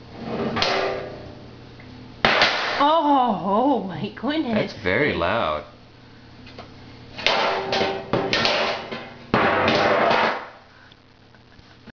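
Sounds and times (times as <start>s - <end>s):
metal baking pans clanging: 7.2s - 10.4s.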